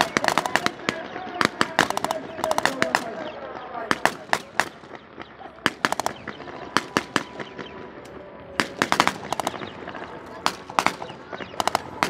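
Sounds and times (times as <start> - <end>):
machine gun bursts: 1.4 - 3.1, 8.6 - 9.8, 10.4 - 12.0.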